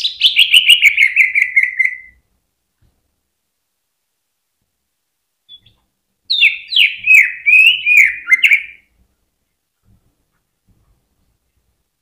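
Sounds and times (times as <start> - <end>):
bird singing whistled notes: 0.0 - 2.2, 5.5 - 8.9.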